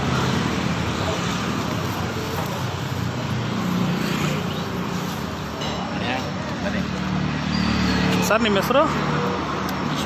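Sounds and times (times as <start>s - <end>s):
road traffic: 0.0s - 10.0s.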